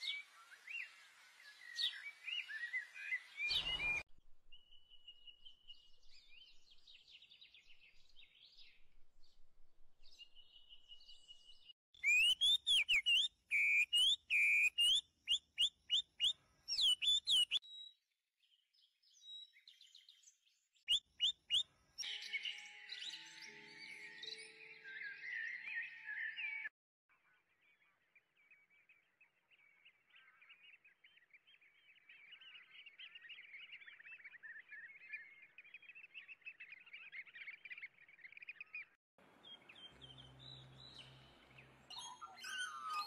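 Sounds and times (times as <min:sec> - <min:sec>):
birds chirping: 0:00.0 - 0:04.0, 0:10.0 - 0:17.6, 0:29.8 - 0:43.0.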